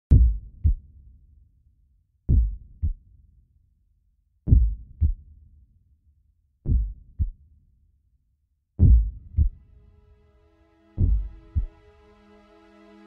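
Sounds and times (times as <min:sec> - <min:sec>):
heartbeat thumps: 0:00.1 - 0:00.8, 0:02.3 - 0:03.0, 0:04.5 - 0:05.2, 0:06.7 - 0:07.3, 0:08.8 - 0:09.6, 0:11.0 - 0:11.7.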